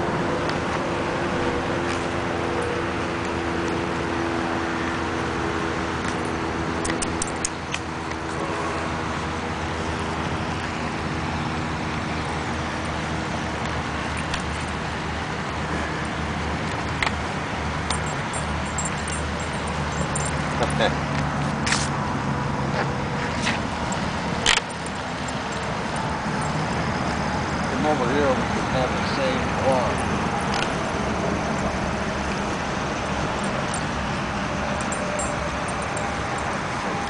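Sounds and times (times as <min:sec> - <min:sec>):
rushing outdoor background noise: 0:00.0 - 0:37.0
high jingles: 0:17.9 - 0:21.1, 0:23.8 - 0:37.0.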